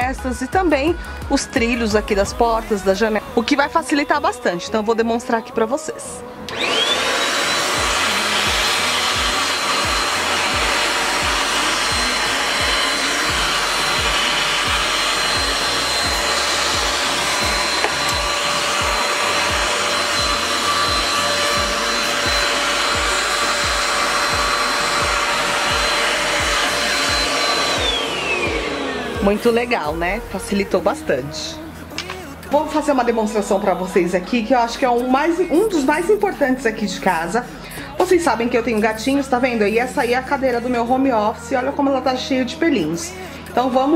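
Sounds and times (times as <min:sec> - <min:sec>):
handheld vacuum motor whine: 0:06.4 - 0:30.9.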